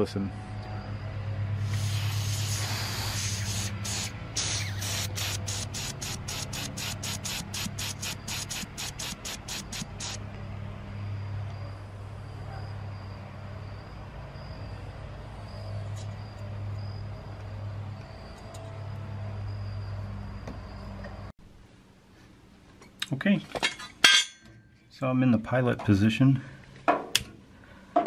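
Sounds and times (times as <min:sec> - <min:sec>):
air hissing in pulses: 0:01.5 - 0:10.2.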